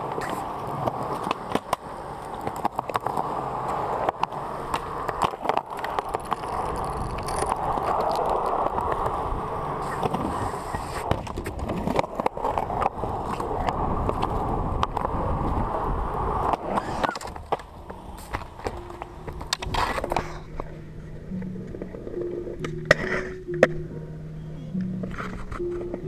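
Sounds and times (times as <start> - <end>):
skateboard wheels rolling on concrete: 0.0 - 26.0
skateboard pops and clacks: 0.1 - 9.2, 16.4 - 20.4.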